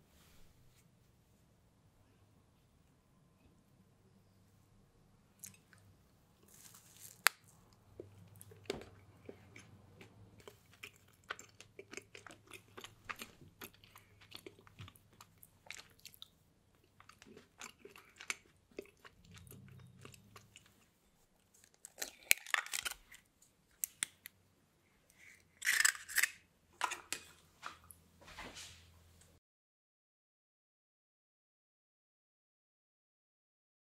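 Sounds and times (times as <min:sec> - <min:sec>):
person chewing: 0:05.4 - 0:24.3.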